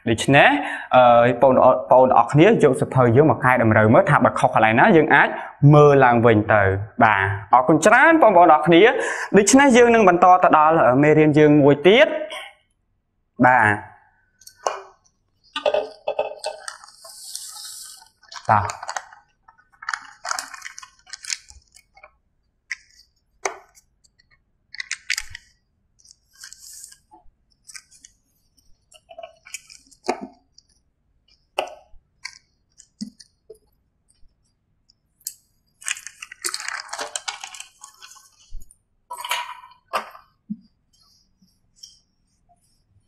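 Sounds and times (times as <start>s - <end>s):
magnets and markers clicking on board: 14.4s - 38.6s
paper chart rustling: 14.5s - 31.5s, 35.7s - 43.0s.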